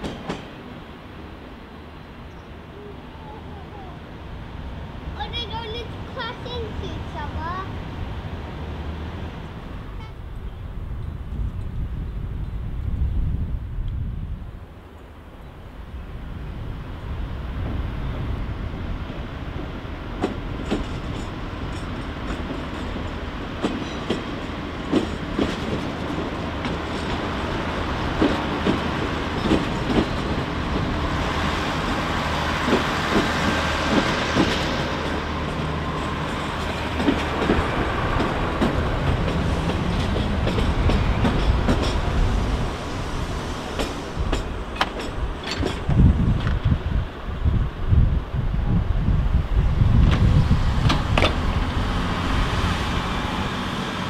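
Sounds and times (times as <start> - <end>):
wind buffeting microphone: 4.1 - 54.0
diesel train engine droning: 15.8 - 54.0
wheels clicking over rail joints: 20.1 - 31.0, 32.6 - 42.3, 43.8 - 46.8, 50.0 - 51.8.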